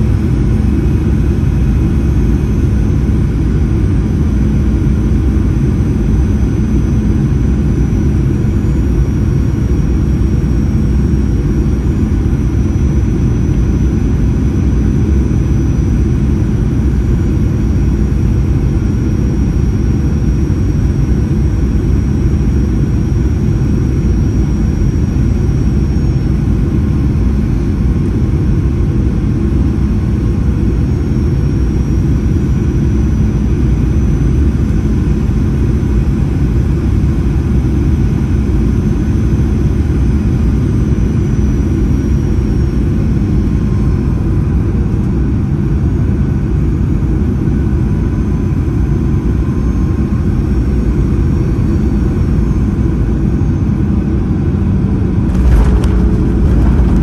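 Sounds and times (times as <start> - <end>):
faint high whine: 0.0 - 57.0
airplane cabin rumble: 50.2 - 57.0.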